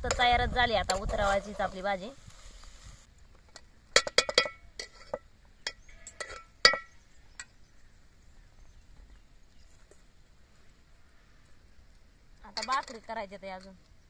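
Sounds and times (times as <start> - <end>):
metal spoon clinking on pots: 3.9 - 7.5, 12.5 - 13.7.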